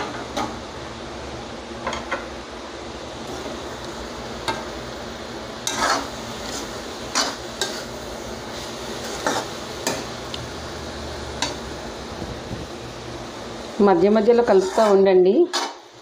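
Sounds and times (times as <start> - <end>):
faint sizzle of leaves cooking: 0.0 - 16.0
metal spatula scraping a pan: 5.6 - 8.0, 8.6 - 10.0, 14.2 - 15.8.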